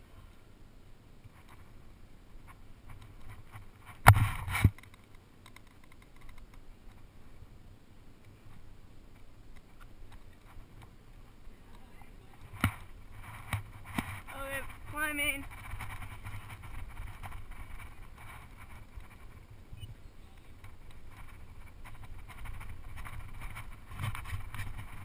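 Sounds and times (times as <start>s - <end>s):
climbing gear clicks and scrapes: 12.4s - 25.0s.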